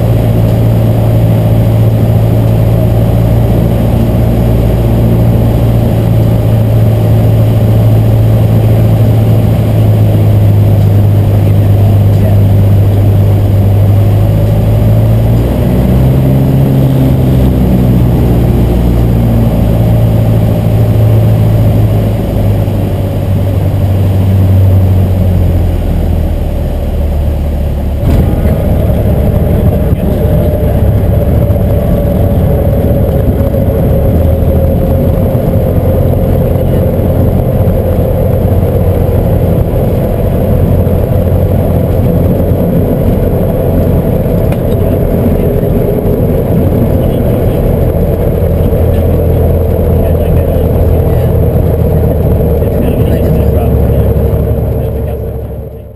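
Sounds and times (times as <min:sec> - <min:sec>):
aircraft engine and propeller: 0:00.0 - 0:55.9.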